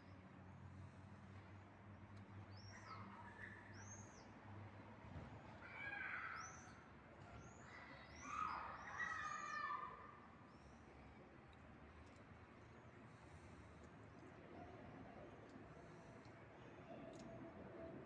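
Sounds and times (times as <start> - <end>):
small birds chirping: 2.5 - 4.4, 6.0 - 14.4.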